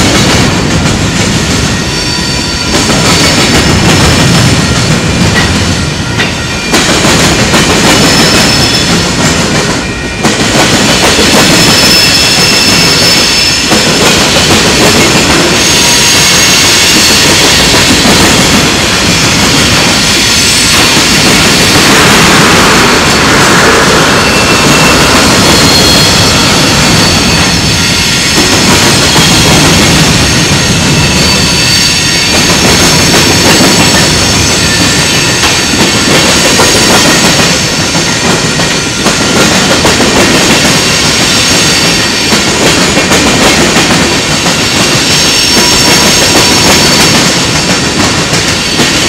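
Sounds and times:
train wheels clattering over crossing: 0.0 - 49.0
high wheel squeal: 1.7 - 3.7, 8.0 - 9.2, 11.4 - 13.8, 19.0 - 38.2, 44.6 - 47.5.

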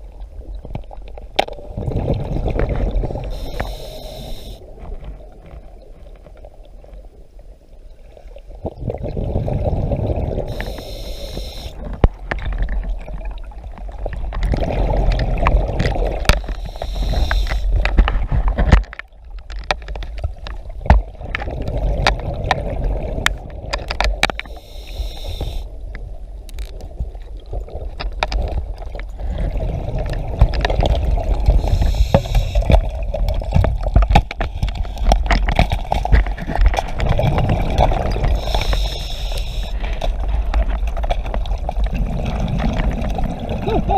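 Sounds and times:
underwater exhaled bubbles: 0.0 - 7.2, 7.9 - 18.4, 20.4 - 25.7, 27.0 - 43.9
regulator hiss: 3.3 - 4.6, 10.5 - 11.8, 16.5 - 17.8, 24.4 - 25.7, 31.6 - 32.7, 38.4 - 39.8.

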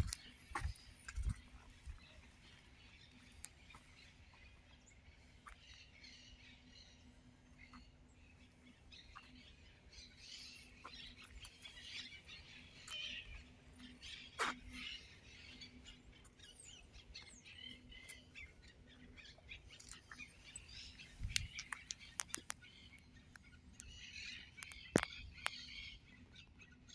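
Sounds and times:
small birds chirping: 0.0 - 26.9
sharp clicks: 21.2 - 22.7.

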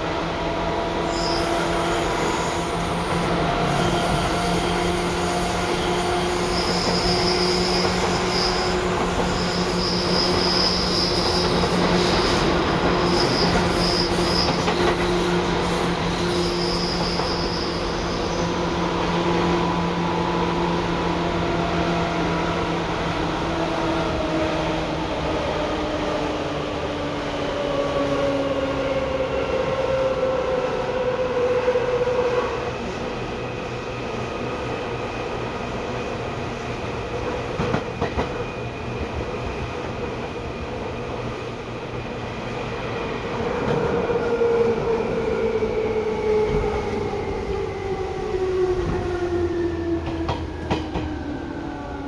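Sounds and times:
train wheel squeal: 0.9 - 20.0.

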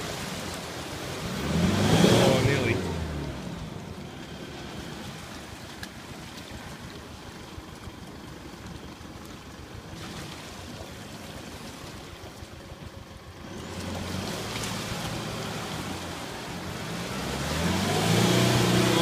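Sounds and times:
truck engine revving under load: 1.1 - 5.2, 13.4 - 19.0.

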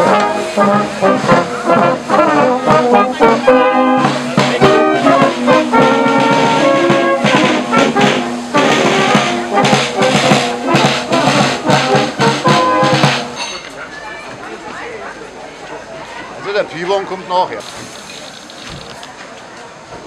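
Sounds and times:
brass band playing: 0.0 - 13.4
marching side drum beats: 0.0 - 13.4.

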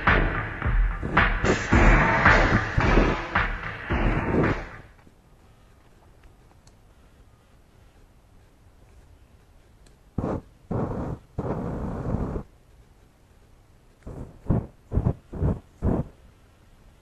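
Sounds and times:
aerosol spray igniting in bursts: 10.2 - 12.5.

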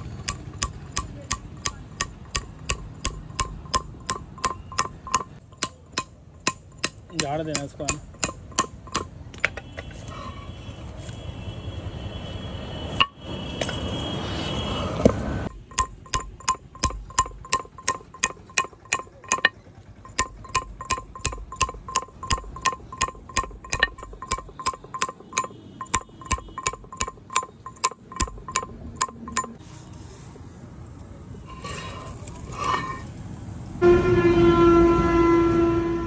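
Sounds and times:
chisel tapping on stone: 0.1 - 9.9, 15.0 - 29.6.

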